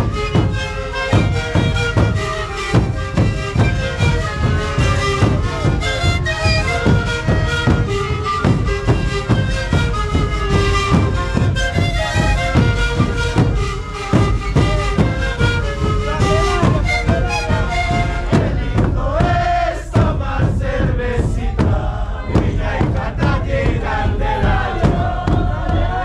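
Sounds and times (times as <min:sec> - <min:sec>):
panpipes playing breathy melody: 0:00.0 - 0:18.8
bass drums beating: 0:00.0 - 0:26.0.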